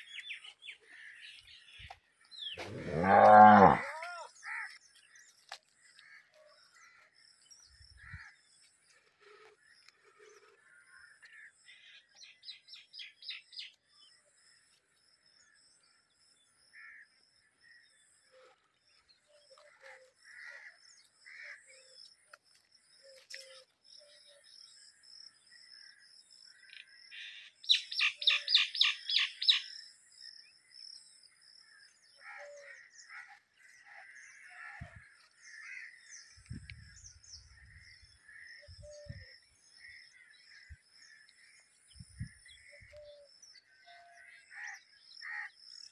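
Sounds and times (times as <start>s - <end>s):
birds chirping: 0.0s - 14.2s.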